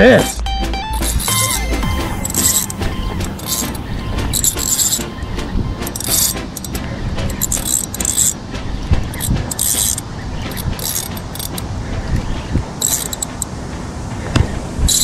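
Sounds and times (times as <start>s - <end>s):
fishing reel drag buzzing: 7.4s - 8.4s, 9.1s - 11.6s, 12.8s - 13.5s
wind rumble on microphone: 11.6s - 15.0s.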